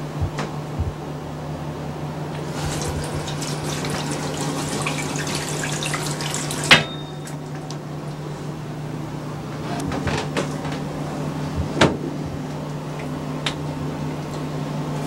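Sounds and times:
water splashing from hands: 2.4 - 7.7
tap running into sink: 2.4 - 7.8.

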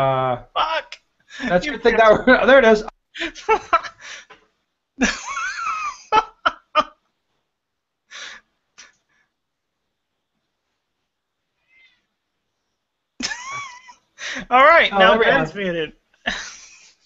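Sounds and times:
person laughing: 13.2 - 14.0.

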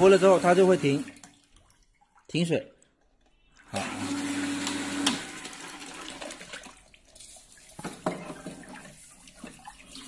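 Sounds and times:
water sloshing in a tank: 0.0 - 10.0.

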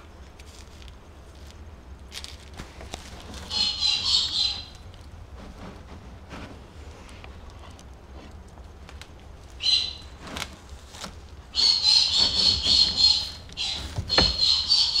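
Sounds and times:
puppies squealing: 3.5 - 4.8, 11.6 - 15.0.

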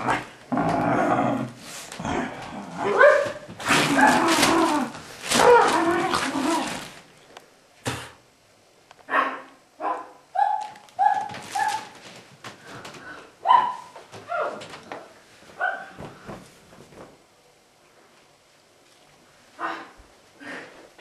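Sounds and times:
dog growling and snarling: 0.0 - 3.0, 3.6 - 6.9.

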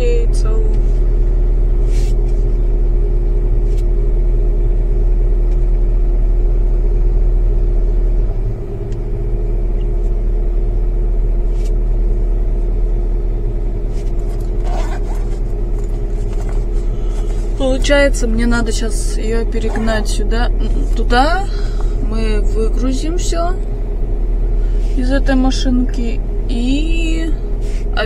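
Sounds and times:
car engine idling: 0.0 - 28.0.

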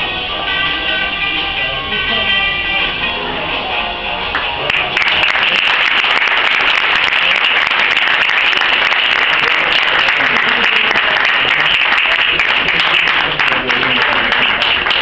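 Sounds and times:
audience clapping: 4.3 - 15.0.

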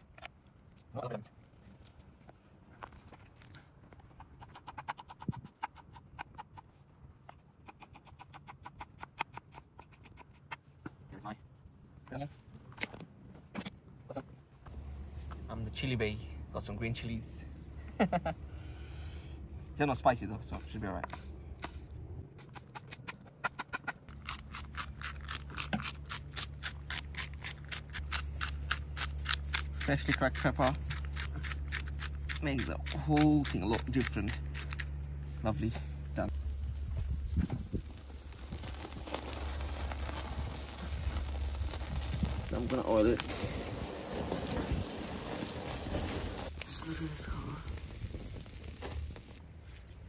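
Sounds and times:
pepper grinder cracking peppercorns: 24.1 - 34.9, 36.3 - 49.4.

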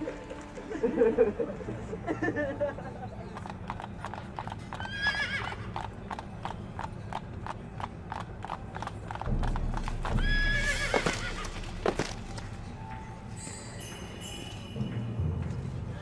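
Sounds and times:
horse hoofbeats: 3.0 - 12.8
horse neighing: 4.8 - 5.7.

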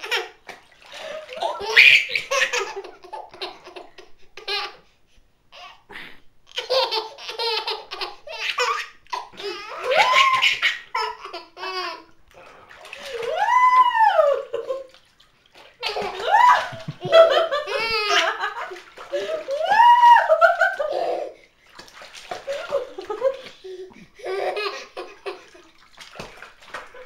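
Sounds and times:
baby laughing and squealing: 1.3 - 2.8, 6.6 - 12.0, 15.8 - 18.4, 19.1 - 21.4.

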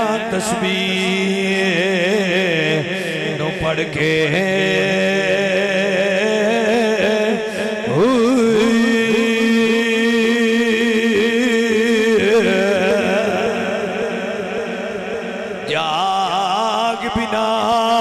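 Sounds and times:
man singing a slow chant: 0.0 - 18.0.

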